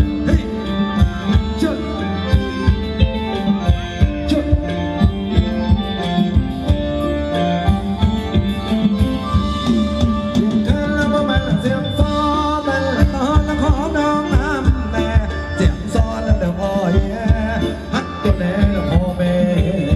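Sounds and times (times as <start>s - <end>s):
sliding melody line: 0.0s - 19.9s
person singing: 9.8s - 19.9s.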